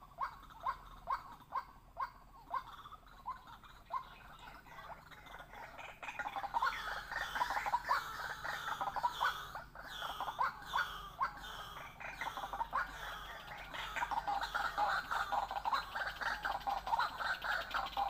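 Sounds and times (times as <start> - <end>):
waterhen calling rapidly: 3.4 - 18.0.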